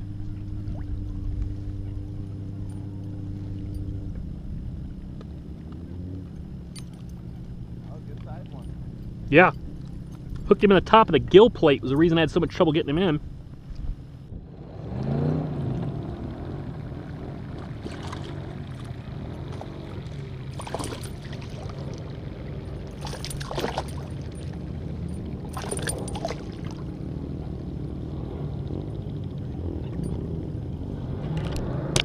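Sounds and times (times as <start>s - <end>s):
low rumble: 0.0s - 32.0s
water splashing: 17.4s - 27.1s.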